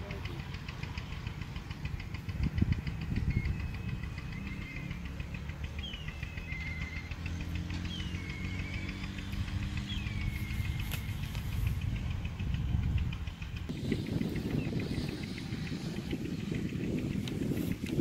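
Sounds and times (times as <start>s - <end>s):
engine drone: 0.0s - 18.0s
rapid high ticking: 0.0s - 18.0s
bird whistling call: 5.8s - 11.5s.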